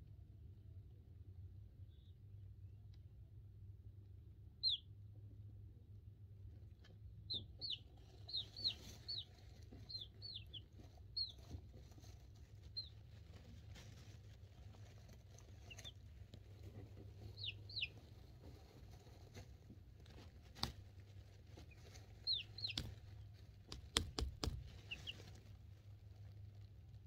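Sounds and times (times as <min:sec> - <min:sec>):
chicks peeping: 0:04.6 - 0:04.9, 0:06.7 - 0:25.6.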